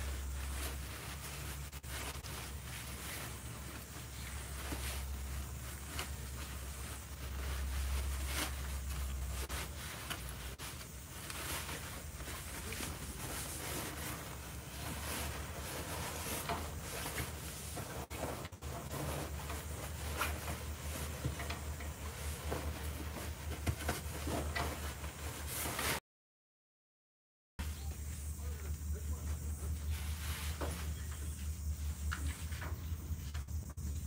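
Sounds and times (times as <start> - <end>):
clothing rustling: 0.0 - 26.0.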